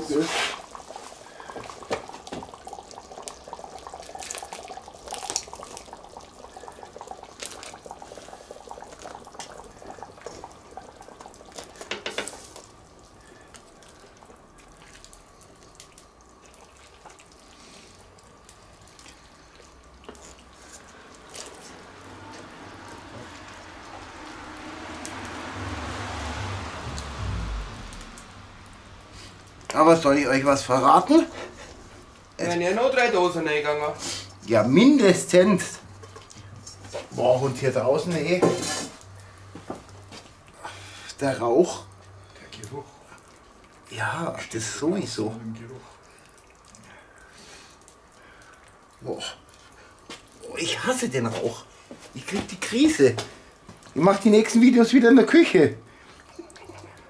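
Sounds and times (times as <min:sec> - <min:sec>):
wooden spoon stirring wet mixture: 0:00.0 - 0:25.6, 0:29.2 - 0:57.0
beans scraped from metal bowl: 0:00.2 - 0:00.7.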